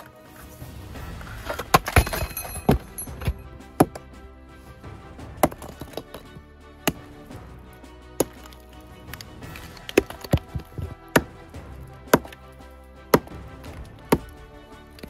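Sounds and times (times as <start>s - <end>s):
background music: 0.0s - 15.0s
metal bar and hammer striking rock: 1.2s - 4.1s, 5.3s - 7.3s, 8.2s - 15.0s.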